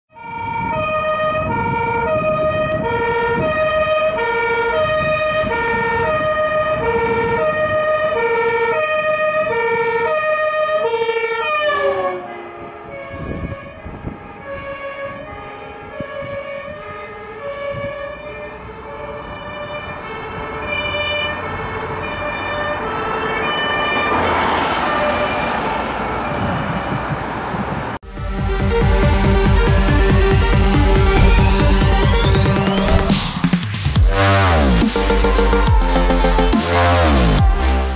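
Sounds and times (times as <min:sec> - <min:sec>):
two-tone siren: 0:00.1 - 0:26.9
truck engine and tyre noise: 0:00.1 - 0:37.9.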